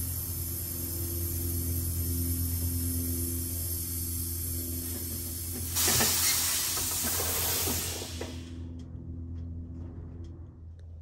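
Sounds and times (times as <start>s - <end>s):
air suspension hissing: 0.0s - 8.6s
low hum: 0.0s - 11.0s.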